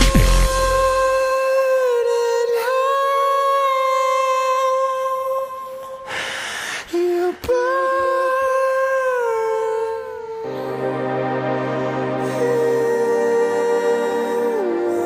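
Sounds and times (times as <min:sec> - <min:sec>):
long held note: 0:10.3 - 0:15.0.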